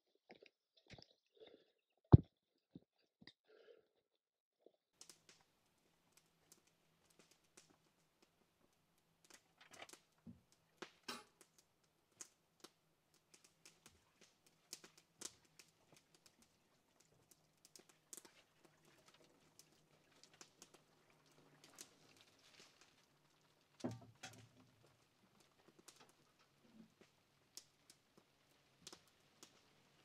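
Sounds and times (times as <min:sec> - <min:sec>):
water trickling and dripping: 0:13.2 - 0:29.7.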